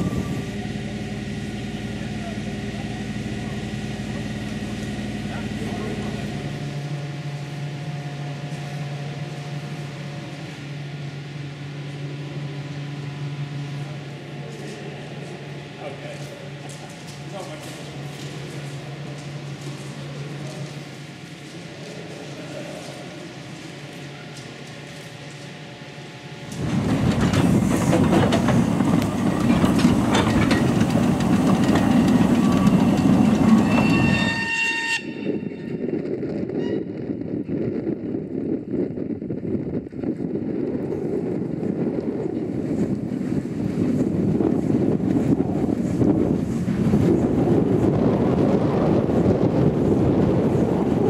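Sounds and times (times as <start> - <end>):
low mechanical hum: 0.0 - 33.8
steam locomotive running past: 0.0 - 37.1, 40.9 - 51.0
rail noise with wheel clicks: 0.4 - 10.6, 13.5 - 37.6, 40.8 - 51.0.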